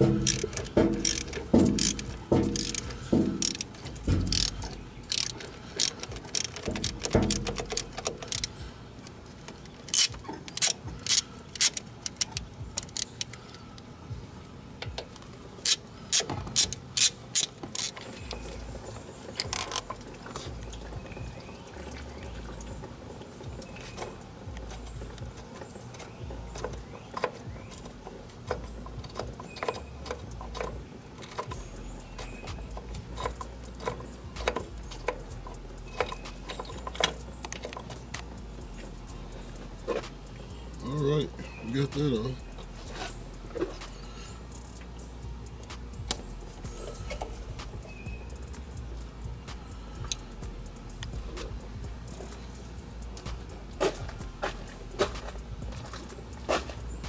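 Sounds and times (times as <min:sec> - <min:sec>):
socket ratchet clicking: 0:00.0 - 0:08.6, 0:09.7 - 0:13.5, 0:14.8 - 0:18.7, 0:41.9 - 0:57.0.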